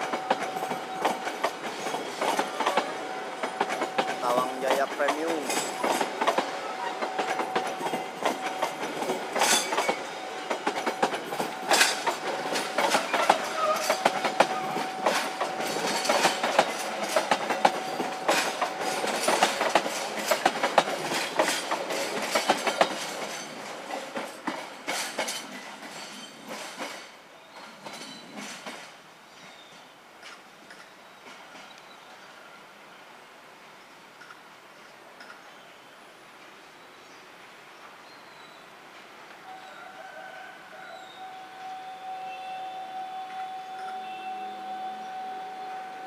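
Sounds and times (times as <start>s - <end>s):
train wheels clacking over rail joints: 0.0s - 31.8s.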